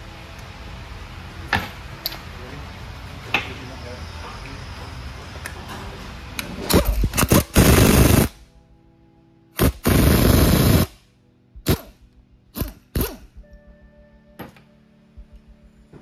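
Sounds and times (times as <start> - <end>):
pneumatic impact wrench hammering: 6.6 - 8.4, 9.6 - 10.9, 11.6 - 12.0, 12.6 - 13.3.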